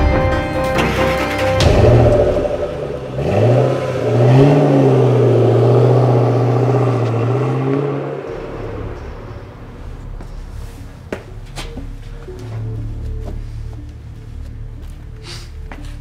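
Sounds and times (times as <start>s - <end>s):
car engine revving: 1.1s - 11.5s.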